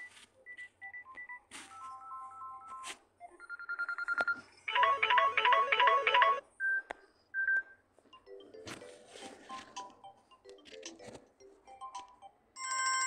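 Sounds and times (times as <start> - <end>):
rapid multi-tone ringing: 3.5 - 6.4
electronic trill ringtone: 4.7 - 6.4.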